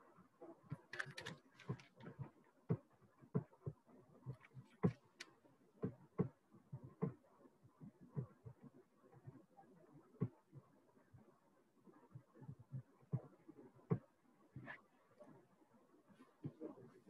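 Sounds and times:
soft clicks and knocks: 0.7s - 6.4s.

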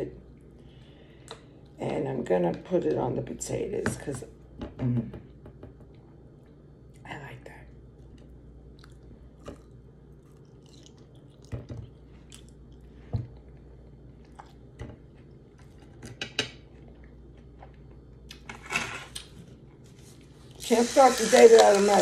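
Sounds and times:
person chewing: 8.0s - 15.8s.

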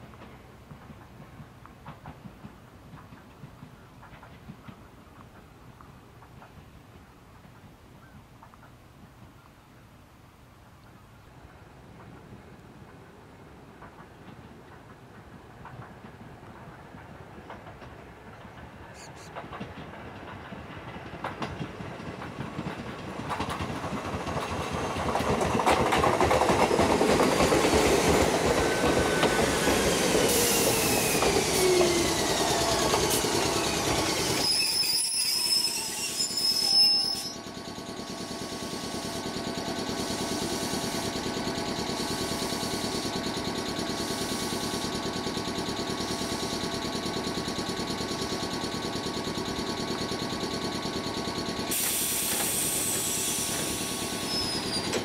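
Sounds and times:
train electrical hum: 0.0s - 55.0s
high brake squeal: 19.0s - 19.3s, 28.8s - 39.3s, 41.9s - 44.9s, 51.2s - 55.0s
electric train motor whine: 26.9s - 55.0s.

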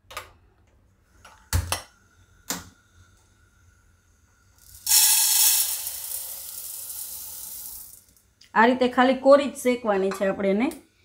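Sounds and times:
dry lentils pouring into pan: 4.6s - 8.2s.

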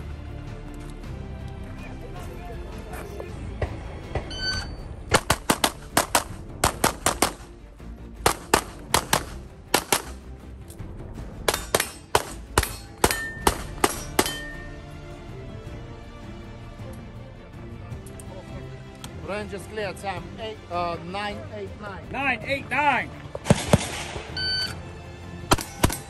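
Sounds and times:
pistol shots: 5.1s - 7.5s, 8.2s - 10.2s, 11.5s - 14.6s, 23.4s - 24.4s, 25.5s - 26.0s
bullet ringing on steel target: 12.6s - 14.7s.

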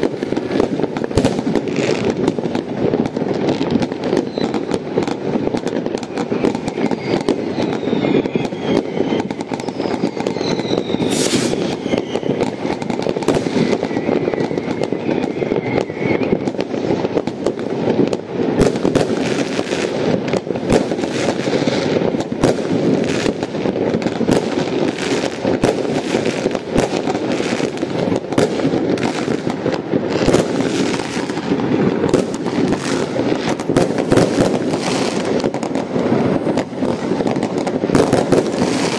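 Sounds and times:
firework whistles: 0.0s - 38.9s
fireworks bangs and crackling: 0.0s - 38.9s.

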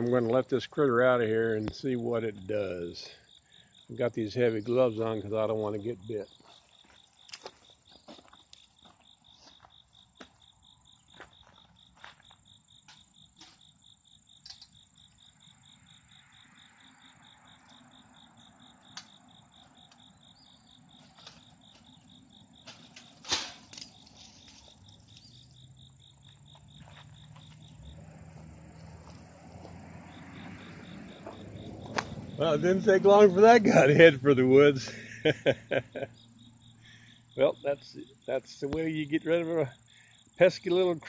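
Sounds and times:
insect trill: 0.0s - 41.0s
wire trap clicks and knocks: 14.4s - 14.8s, 22.6s - 25.3s.

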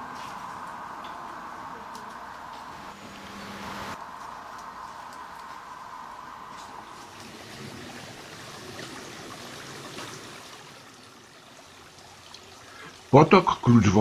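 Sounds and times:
brook flowing over stones: 6.5s - 13.4s.

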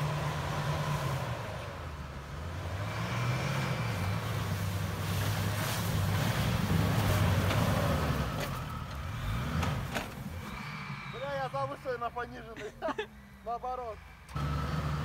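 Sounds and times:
engine working hard under load: 0.0s - 12.4s, 13.4s - 15.0s
wheels throwing snow: 2.6s - 12.6s.

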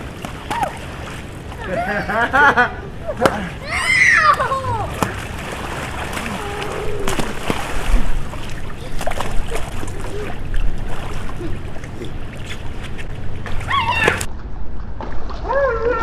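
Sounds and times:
sharp slaps on water: 0.0s - 1.6s, 3.2s - 3.6s, 4.3s - 11.1s, 12.4s - 14.3s
pool water splashing: 0.0s - 16.0s.

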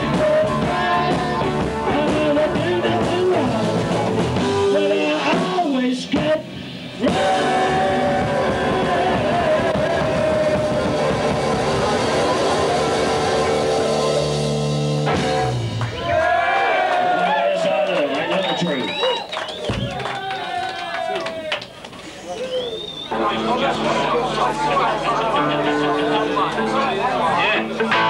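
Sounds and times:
low bass notes: 0.0s - 16.3s, 23.1s - 28.0s
blues rock band playing: 0.0s - 16.4s, 23.0s - 28.0s.

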